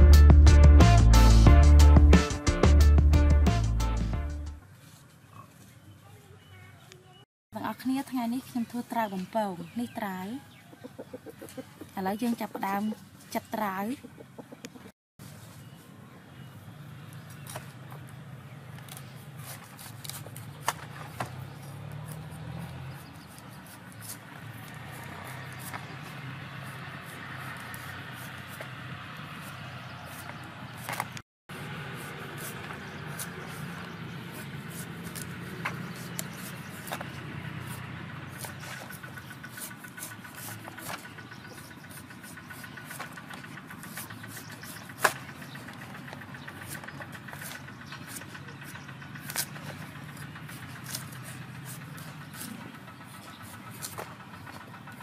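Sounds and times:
knife scraping vegetable skin: 18.8s - 54.2s.

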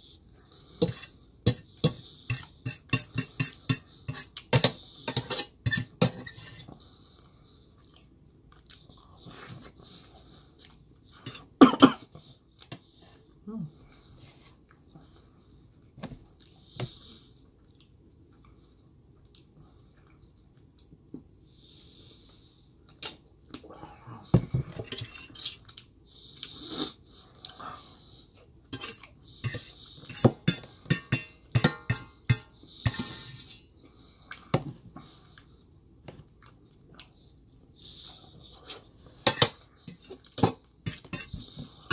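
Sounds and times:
metal fork scraping steel plate: 28.8s - 33.6s.

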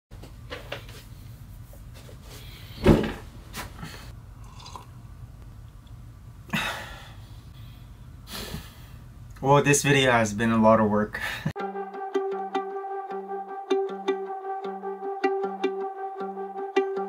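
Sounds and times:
low room hum: 0.2s - 11.5s
thump: 2.8s - 3.2s
sipping from a mug: 4.4s - 4.9s.

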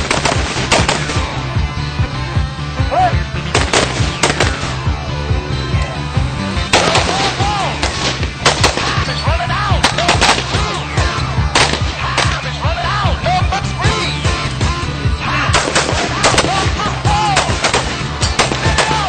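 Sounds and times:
rifle gunshots: 0.0s - 1.4s, 3.5s - 4.9s, 6.7s - 9.1s, 9.8s - 12.4s, 15.5s - 19.0s
background music with steady beat: 0.0s - 19.0s.

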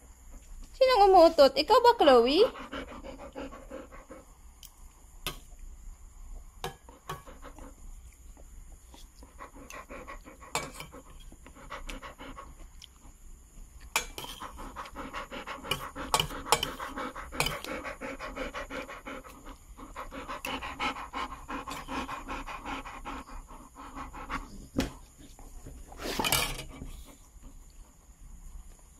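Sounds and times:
dog panting: 2.1s - 4.4s, 6.9s - 8.0s, 8.8s - 13.2s, 14.3s - 28.2s.

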